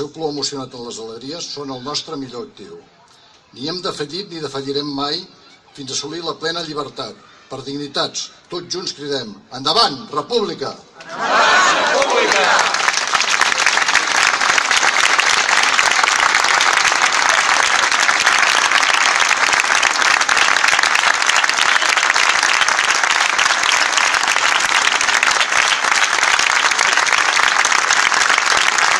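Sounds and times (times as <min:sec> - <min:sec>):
crowd applauding: 0:11.0 - 0:28.9.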